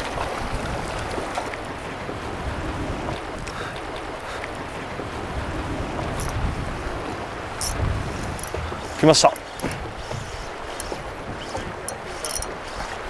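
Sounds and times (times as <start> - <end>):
water sloshing around boat: 0.0 - 13.0
wind buffeting microphone: 0.0 - 13.0
faint high ticks: 6.1 - 6.4, 7.6 - 13.0.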